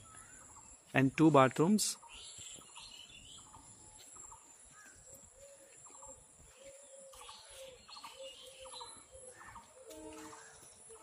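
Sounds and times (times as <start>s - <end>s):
distant birds chirping: 0.0s - 11.0s.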